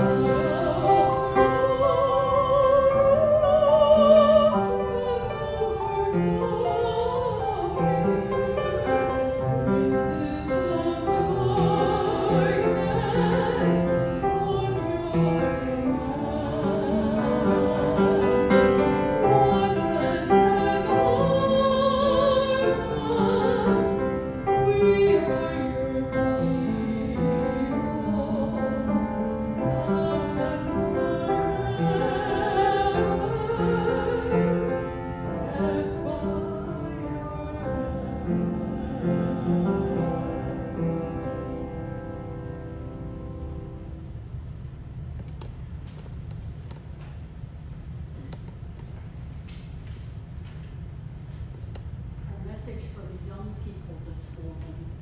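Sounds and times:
woman singing with vibrato: 0.0s - 41.6s
piano accompaniment: 0.0s - 45.9s.

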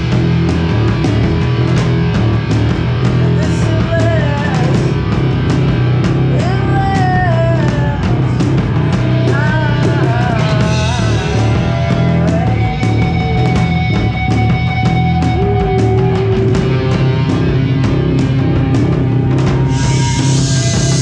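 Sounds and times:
bass guitar: 0.0s - 21.0s
distorted electric guitar: 0.0s - 21.0s
drum kit: 0.0s - 21.0s.

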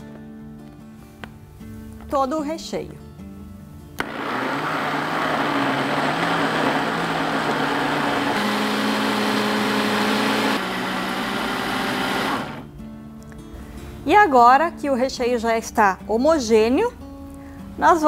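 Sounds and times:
electric blender whirring: 4.0s - 12.6s.

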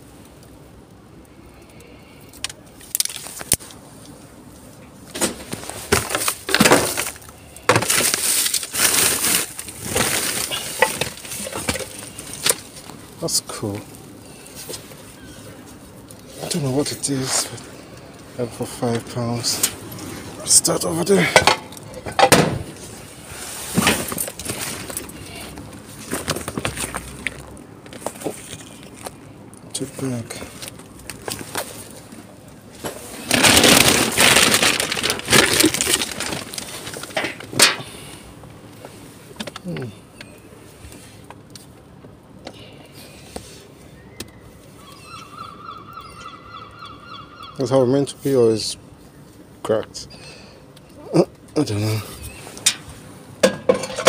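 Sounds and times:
plastic bags crinkling: 5.4s - 13.3s, 30.4s - 37.7s.

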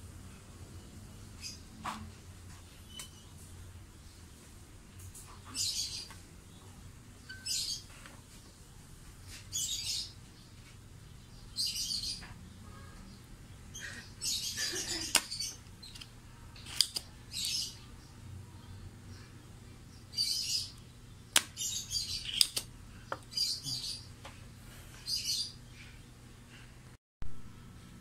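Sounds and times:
desoldering pump clicks: 15.1s - 17.6s, 22.2s - 23.3s.

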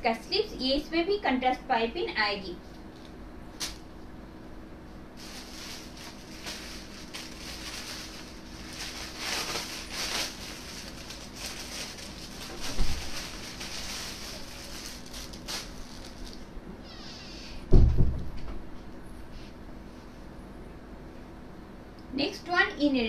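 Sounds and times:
faint steady hum: 0.0s - 23.0s
cloth rustling: 5.2s - 16.4s.

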